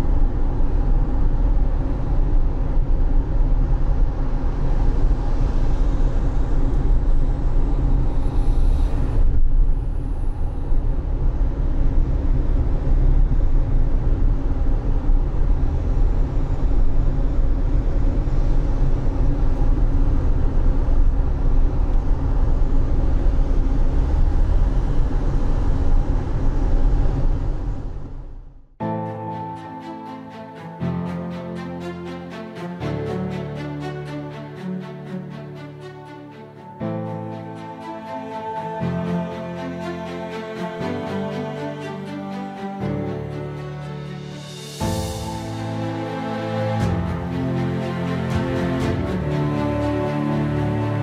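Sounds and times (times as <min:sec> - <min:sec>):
engine and road rumble: 0:00.0 - 0:28.8.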